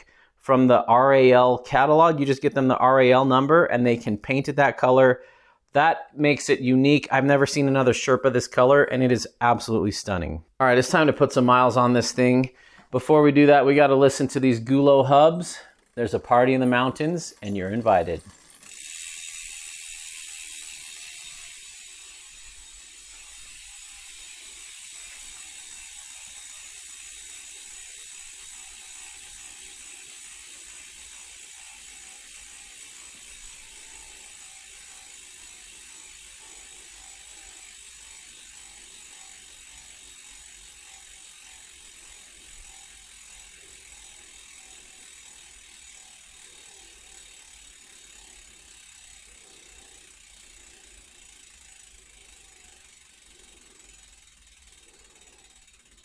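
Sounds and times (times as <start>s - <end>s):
bike freehub ratchet buzzing: 13.8s - 56.0s.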